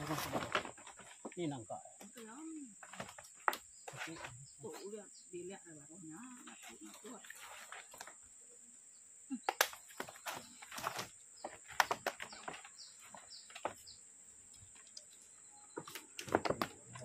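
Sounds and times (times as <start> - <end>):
falling bird chirps: 8.9 - 17.0.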